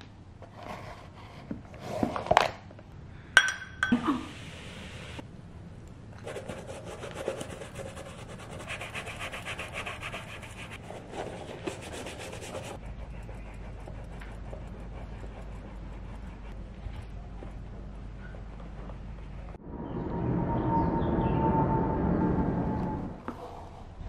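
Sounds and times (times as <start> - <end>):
toothbrush scrubbing a sneaker: 6.2 - 17.0.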